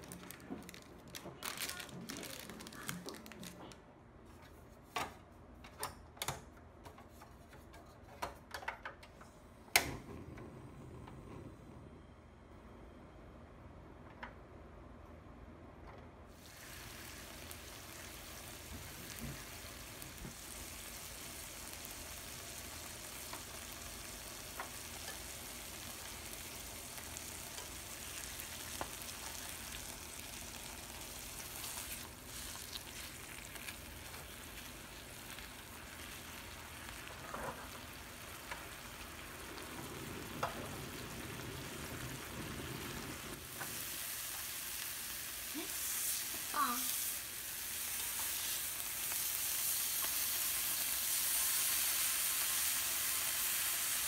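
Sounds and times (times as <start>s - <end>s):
ham sizzling in a frying pan: 16.3s - 54.0s.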